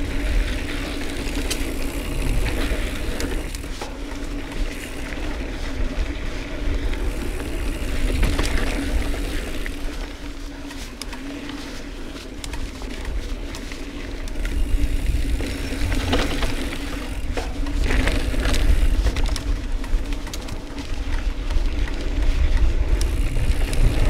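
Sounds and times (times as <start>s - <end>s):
tyres crunching on dirt: 0.0s - 24.0s
bike knocks and rattles: 6.9s - 9.8s, 14.3s - 24.0s
wind rumbling over microphone: 14.2s - 24.0s.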